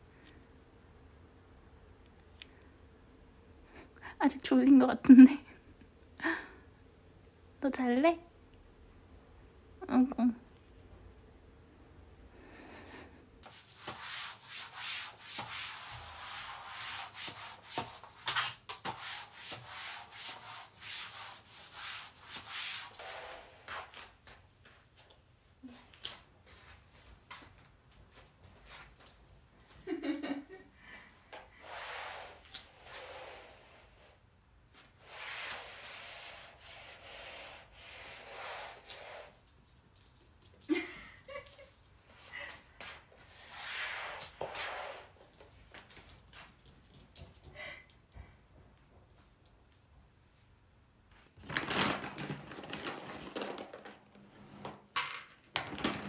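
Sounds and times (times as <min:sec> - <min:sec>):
mop swishing across floor: 0:13.4 - 0:30.3, 0:31.3 - 0:47.3.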